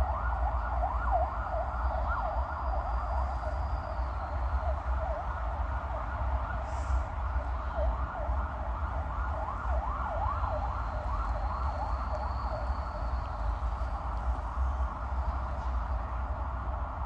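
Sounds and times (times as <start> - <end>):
distant siren yelping: 0.0 - 6.4, 7.7 - 14.2.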